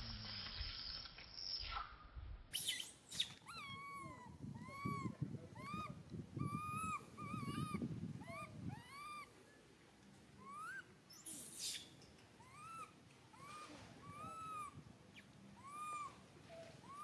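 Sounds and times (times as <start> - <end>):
baby monkey crying: 2.6 - 9.3, 10.4 - 16.2.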